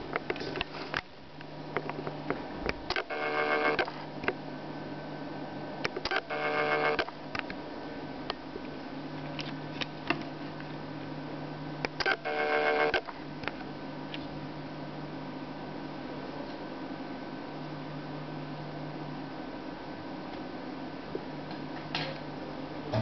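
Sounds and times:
multimeter buzzer beeping: 2.9 - 3.9, 6.0 - 7.1, 12.0 - 13.1.

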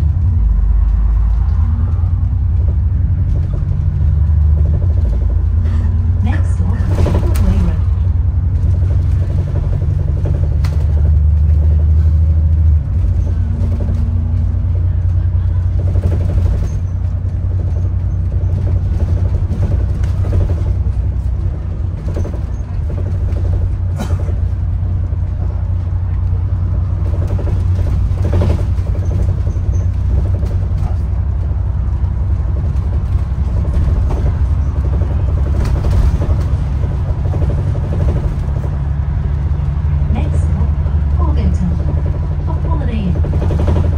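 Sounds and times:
bus body knocking and rattling: 0.0 - 43.9
bus engine and road rumble: 0.0 - 43.9.

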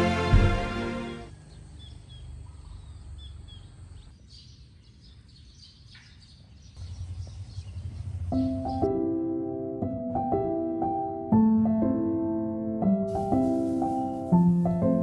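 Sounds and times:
soft piano music: 0.0 - 1.3, 7.8 - 15.0
small birds chirping: 1.1 - 9.0
steady low rumble: 6.8 - 8.7.

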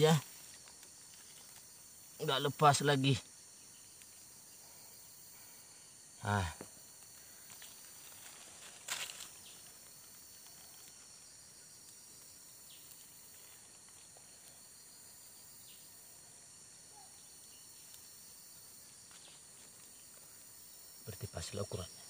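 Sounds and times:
high-pitched insect chorus: 0.0 - 22.0
crackling rustle: 0.1 - 1.9, 6.9 - 14.8, 18.8 - 20.3.

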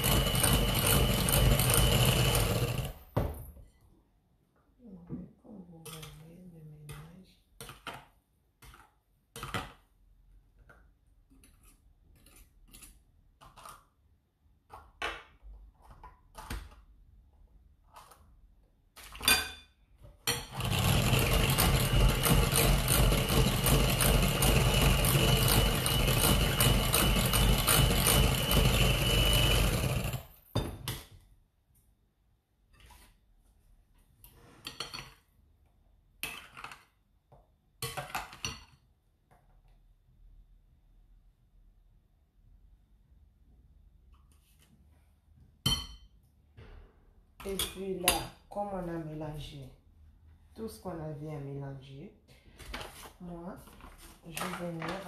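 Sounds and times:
electric hand mixer whining: 0.0 - 3.0, 20.5 - 30.3.

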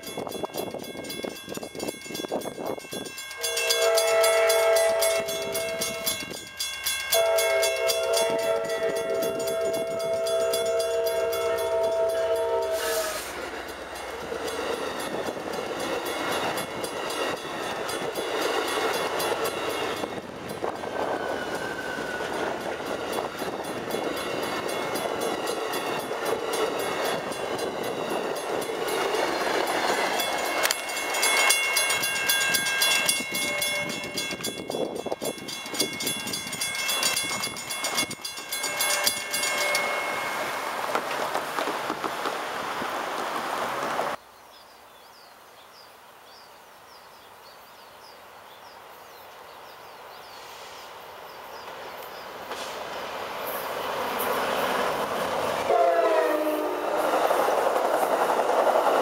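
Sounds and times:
crossing bell ringing: 0.0 - 40.9
train wheels clattering on rail: 0.0 - 44.2, 51.6 - 59.0
locomotive horn blasts: 3.4 - 6.2, 7.1 - 13.5, 55.7 - 57.0.

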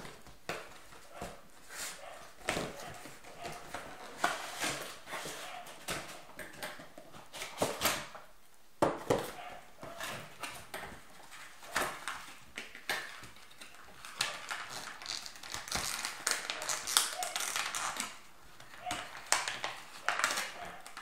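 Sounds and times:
packaging crinkling and rustling: 9.2 - 21.0
packaging snaps: 11.7 - 21.0.

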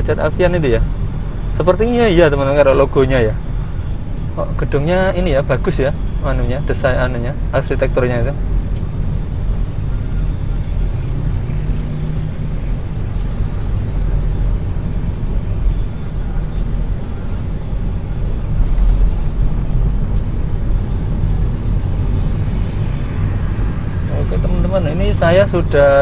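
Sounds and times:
car road and engine rumble: 0.0 - 26.0.

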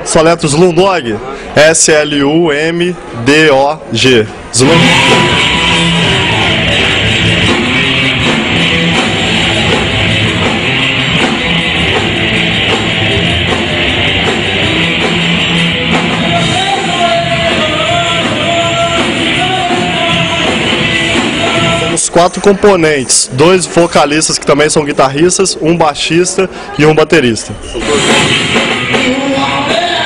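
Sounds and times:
electric guitars: 4.6 - 22.0
bass guitar: 4.6 - 22.1, 27.6 - 30.0
drum kit: 4.6 - 22.6, 27.8 - 30.0.

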